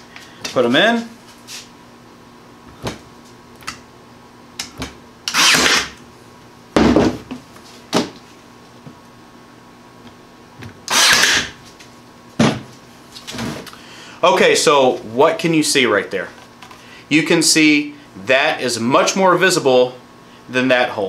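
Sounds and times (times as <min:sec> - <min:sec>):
nailer shots: 0:04.6 - 0:06.0, 0:10.9 - 0:11.6.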